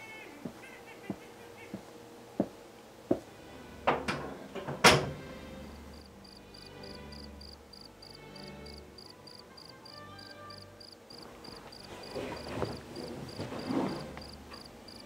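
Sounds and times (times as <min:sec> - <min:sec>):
cricket chirping: 0:05.8 - 0:15.0.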